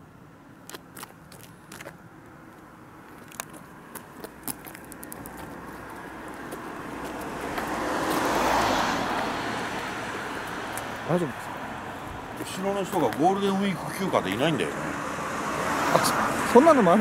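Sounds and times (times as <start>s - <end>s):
car driving past: 5.5s - 17.0s.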